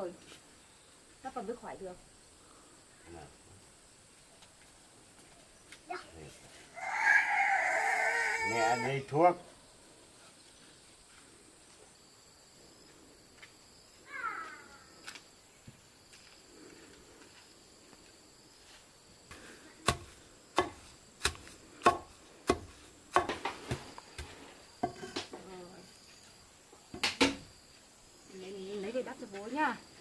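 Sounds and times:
knife chopping on wooden board: 19.8s - 25.1s.

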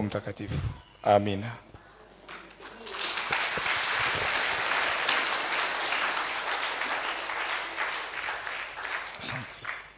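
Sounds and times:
crowd applauding: 2.3s - 9.9s.

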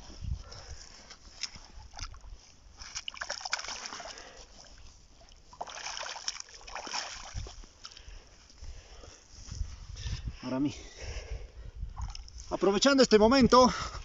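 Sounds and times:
fish splashing in water: 2.8s - 4.4s, 5.5s - 7.5s.

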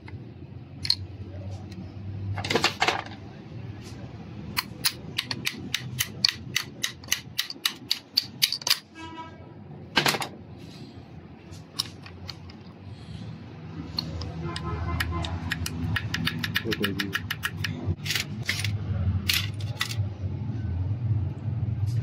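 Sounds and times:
sharp metallic clicks: 4.5s - 8.9s, 13.9s - 20.0s.

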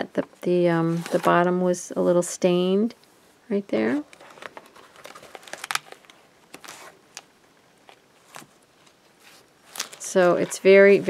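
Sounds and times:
paper pages rustling: 4.1s - 11.0s.

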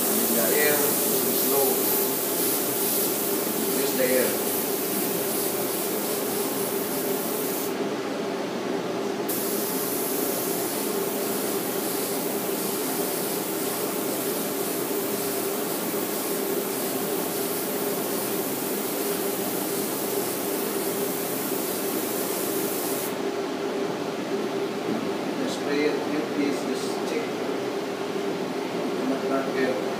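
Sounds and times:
spray gun hissing: 0.0s - 7.8s, 9.3s - 23.2s
steady hum: 0.0s - 29.9s.

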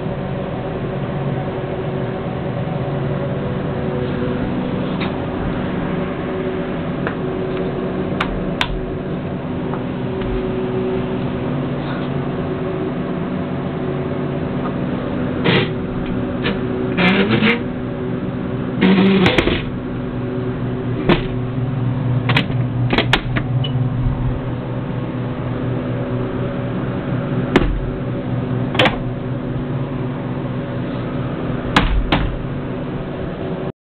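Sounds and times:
steady mechanical hum: 0.0s - 33.7s.

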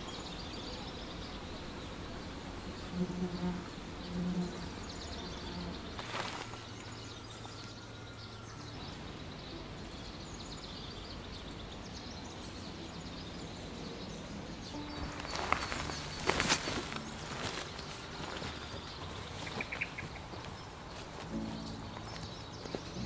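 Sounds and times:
faint high bird chirps: 0.0s - 23.0s
forest ambience: 0.0s - 23.0s
flying insect buzzing: 0.9s - 9.8s, 14.7s - 23.0s.

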